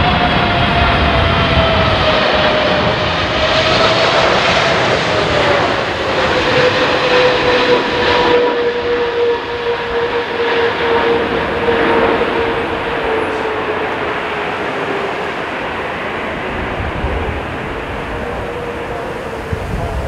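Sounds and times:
jet engine roar and whine: 0.0 - 20.0.

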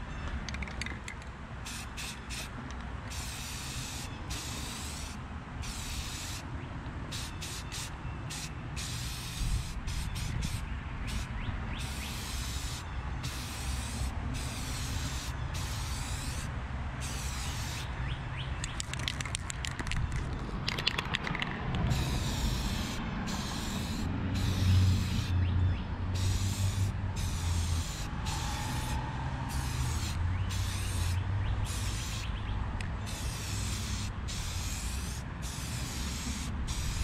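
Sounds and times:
aerosol spray can hissing: 1.7 - 2.5, 3.1 - 6.4, 7.1 - 17.9, 21.9 - 25.3, 26.2 - 32.3, 33.1 - 37.0.

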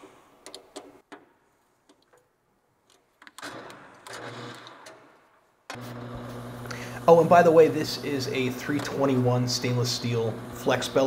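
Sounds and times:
lathe mechanical noise: 5.7 - 11.0
low motor hum: 5.8 - 11.0.

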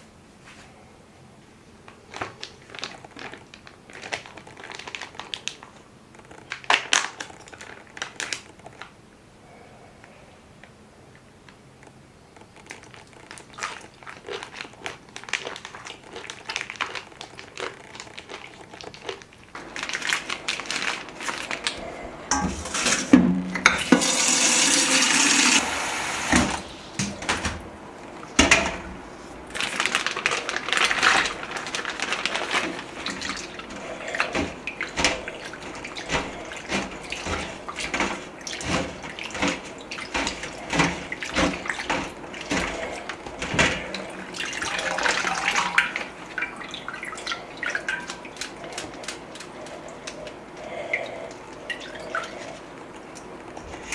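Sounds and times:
water splashing in sink: 19.6 - 27.6, 28.3 - 53.9
tap running: 22.3 - 27.6, 31.6 - 45.4.

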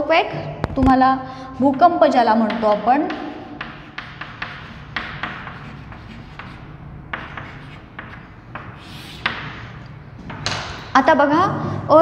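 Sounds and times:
chalk scratching on chalkboard: 1.5 - 9.9.

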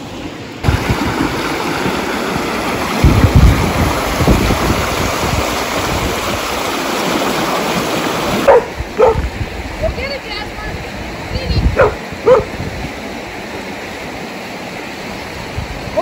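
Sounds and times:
creek water rushing over stones: 0.0 - 16.0.

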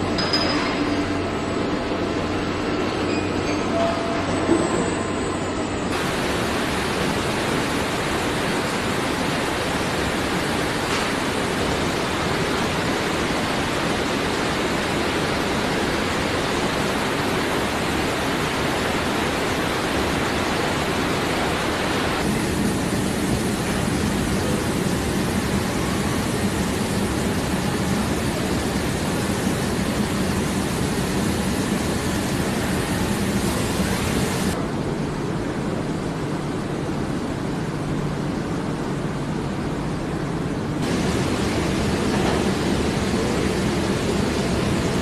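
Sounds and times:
steady machinery rushing noise: 5.9 - 35.5, 40.6 - 45.0.

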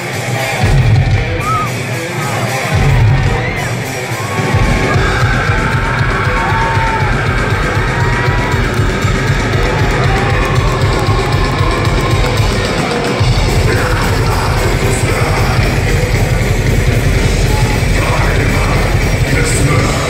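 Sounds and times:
amplified guitars: 0.0 - 20.0
drums: 0.0 - 20.0
live heavy metal band: 0.0 - 20.0
vocalist singing: 10.0 - 20.0.

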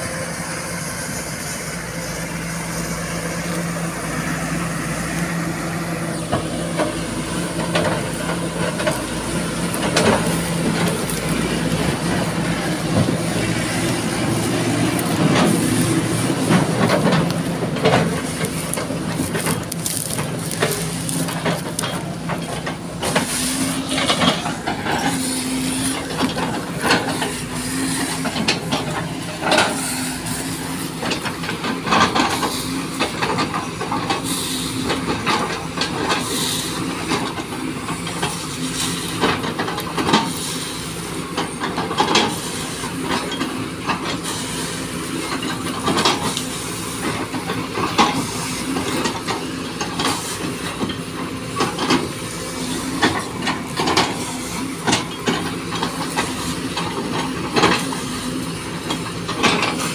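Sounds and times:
excavator diesel engine running: 0.0 - 59.9
wood cracking and snapping: 18.5 - 22.1.

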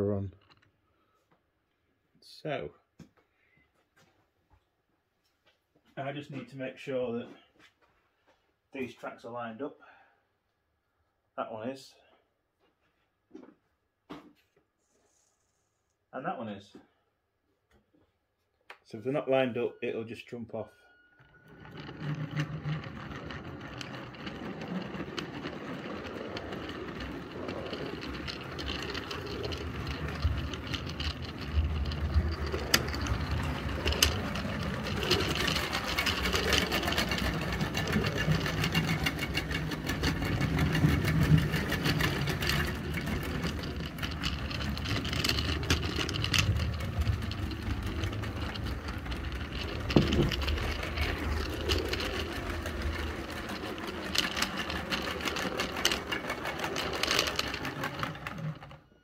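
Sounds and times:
man talking: 0.0 - 0.4, 6.0 - 7.4, 18.9 - 20.7
model locomotive motor hum: 21.7 - 58.8.

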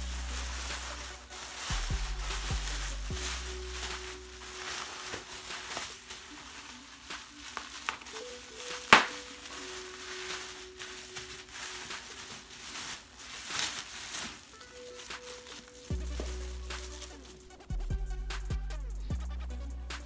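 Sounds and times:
bubble wrap pop: 0.0 - 9.6
plastic packaging crinkling: 0.0 - 17.7.

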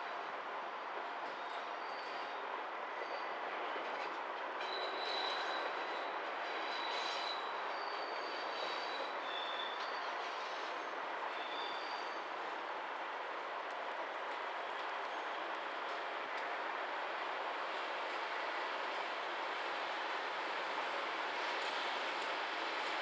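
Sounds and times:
high-pitched wheel squeals: 4.6 - 10.7, 11.3 - 12.3.

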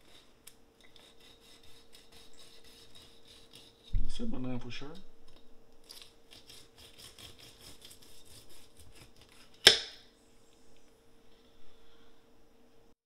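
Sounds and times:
knife scraping fish: 0.0 - 4.0, 5.8 - 9.8.

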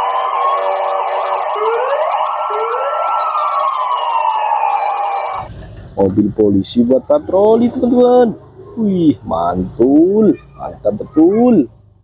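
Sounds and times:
police sirens wailing: 0.0 - 5.6, 6.7 - 11.7.

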